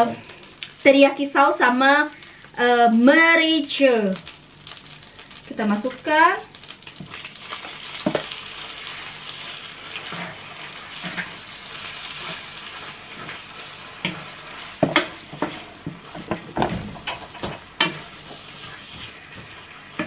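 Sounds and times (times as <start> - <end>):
chicken sizzling in a frying pan: 0.0 - 20.0
wooden spatula scraping a pan: 9.8 - 20.0.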